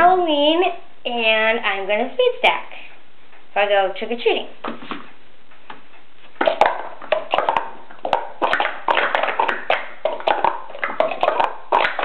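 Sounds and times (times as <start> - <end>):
plastic cups clacking: 6.4 - 12.0.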